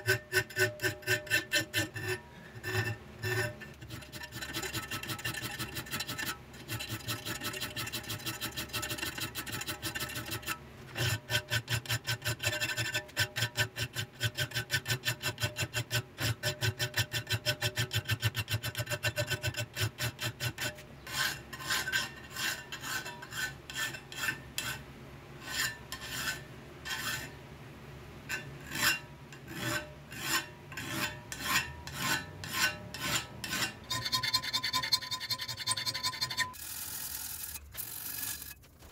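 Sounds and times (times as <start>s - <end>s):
file rasping on steel: 0.0s - 24.8s, 25.4s - 27.4s, 28.3s - 38.6s.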